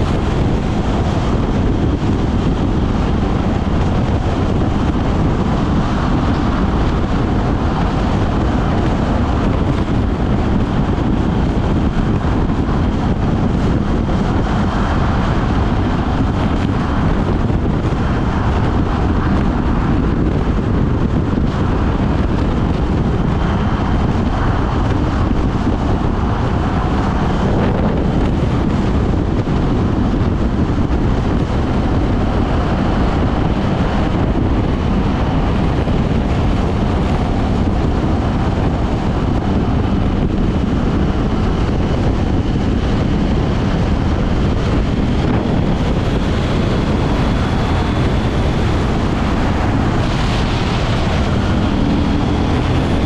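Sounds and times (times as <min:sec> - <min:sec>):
motorcycle engine: 0:00.0 - 0:53.0
wind rush over microphone: 0:00.0 - 0:53.0.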